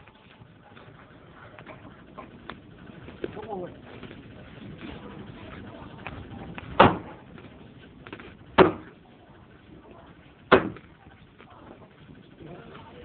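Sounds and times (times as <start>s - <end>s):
axe chopping firewood: 6.8s - 7.2s, 8.6s - 9.0s, 10.5s - 10.9s.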